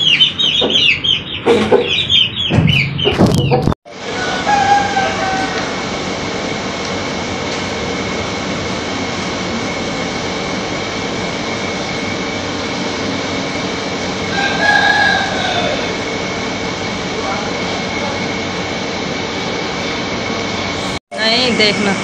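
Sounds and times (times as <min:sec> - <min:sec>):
steady background noise: 0:00.0 - 0:22.0
rooster crowing: 0:04.0 - 0:05.9, 0:14.2 - 0:16.0.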